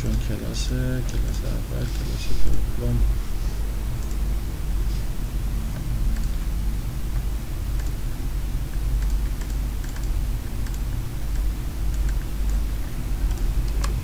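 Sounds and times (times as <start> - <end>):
computer keyboard clicking: 0.0 - 0.3, 5.7 - 6.4, 7.8 - 8.0, 8.7 - 14.0
steady low hum: 0.0 - 14.0.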